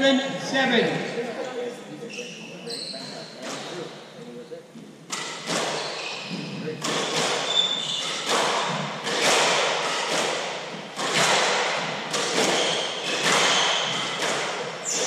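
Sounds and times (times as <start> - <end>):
squash ball cracking off walls: 6.8 - 15.0.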